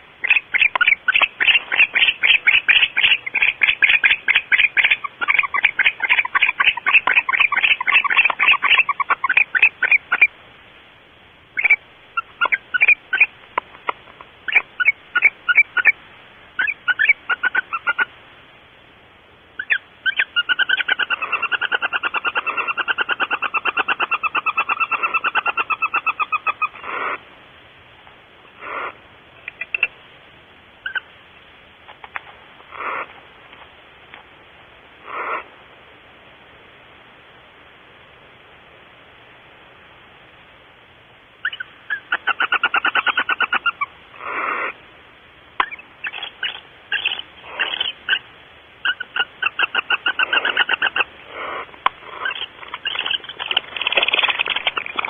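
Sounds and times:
owl single calls: 0.0s - 10.4s, 11.6s - 13.4s, 14.4s - 16.0s, 16.6s - 18.1s, 19.6s - 27.2s, 28.5s - 29.9s, 30.8s - 31.1s, 32.6s - 33.2s, 35.0s - 35.6s, 41.4s - 44.8s, 45.6s - 55.0s
owls chittering rapidly: 0.0s - 10.4s, 11.6s - 16.0s, 16.6s - 18.1s, 19.6s - 27.2s, 28.6s - 29.9s, 30.8s - 31.1s, 32.7s - 33.2s, 35.0s - 35.5s, 41.4s - 44.8s, 45.6s - 55.0s
owl clicks: 0.2s - 10.3s, 11.6s - 16.0s, 28.6s - 29.9s, 45.6s - 48.2s, 48.8s - 55.0s.

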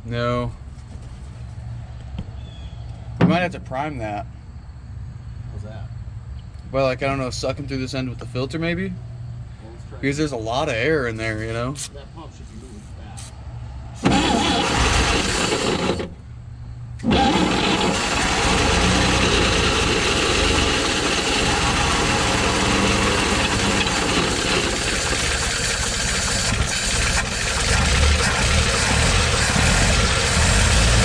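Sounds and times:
engine cranking on starter: 14.0s - 16.2s, 17.0s - 31.0s.

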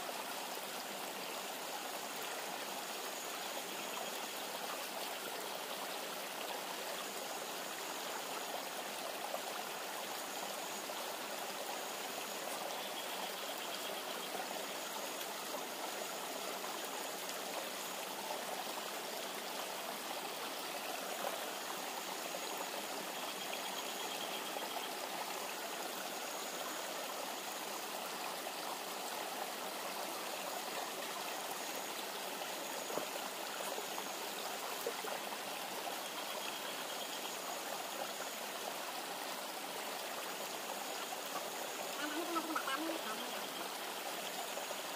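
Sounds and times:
river rushing over stones: 24.5s - 44.9s.

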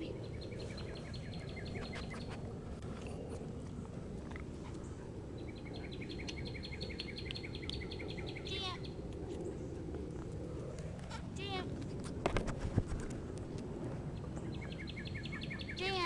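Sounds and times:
songbird chirping: 0.0s - 2.4s, 4.8s - 9.6s, 14.2s - 16.0s
low outdoor background hum: 0.0s - 16.0s.

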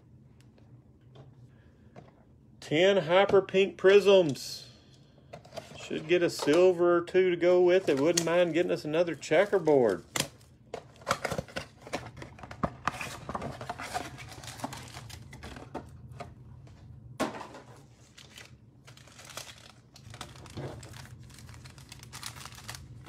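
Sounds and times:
foil packs rustling: 7.7s - 15.7s, 17.6s - 23.0s
shrink wrap crinkling and tearing: 7.7s - 15.7s, 17.8s - 23.0s.

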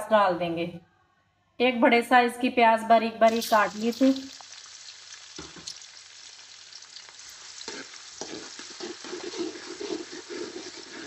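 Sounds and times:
onions sizzling in hot oil: 3.3s - 11.0s
metal spatula scraping pan: 7.5s - 11.0s.

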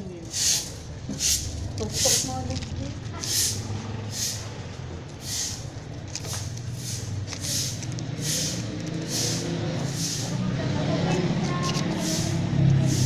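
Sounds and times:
pencil eraser rubbing on paper: 3.2s - 4.4s, 6.2s - 10.3s, 11.6s - 13.0s.

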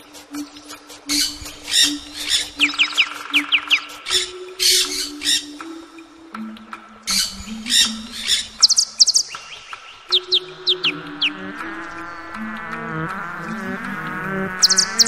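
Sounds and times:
soft low instrumental melody: 0.0s - 15.0s
harsh squawking calls: 0.3s - 5.6s, 7.1s - 11.5s, 14.5s - 15.0s
high falling bird chirps: 0.4s - 5.6s, 7.1s - 11.5s, 14.5s - 15.0s.

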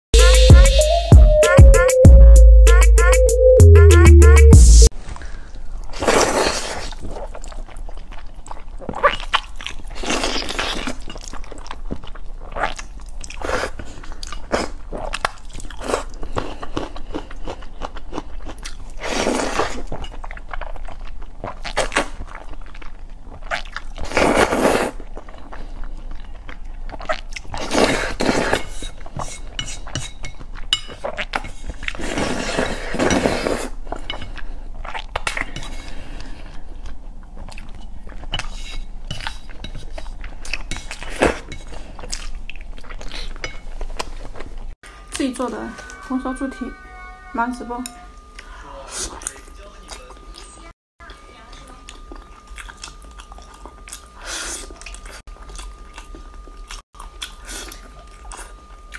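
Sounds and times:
wet chewing: 5.8s - 44.8s, 51.4s - 58.9s
person slurping noodles: 5.9s - 7.6s, 24.0s - 25.0s, 32.0s - 33.8s.

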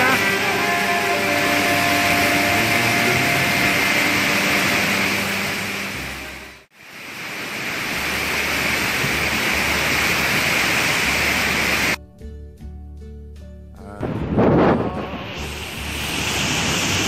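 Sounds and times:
waterfall roaring: 0.0s - 12.0s, 14.0s - 17.0s
quiet music with held tones: 12.0s - 16.6s.

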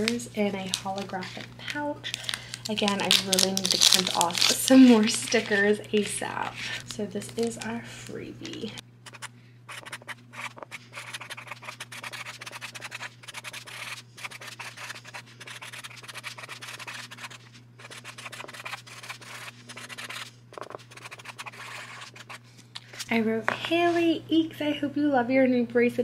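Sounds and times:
marker scratching on card: 9.1s - 22.4s.

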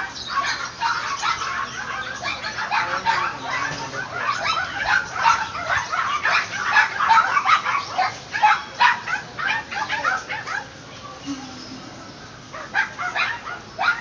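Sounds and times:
small dogs yapping and barking: 0.0s - 14.0s.

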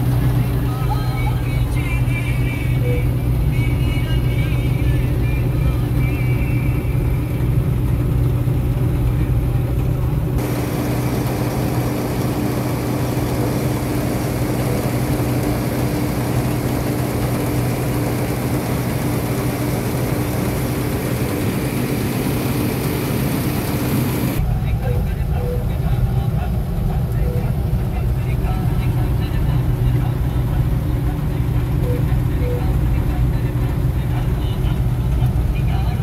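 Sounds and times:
combine harvester engine drone: 0.0s - 36.0s
threshing machinery: 10.4s - 24.4s.

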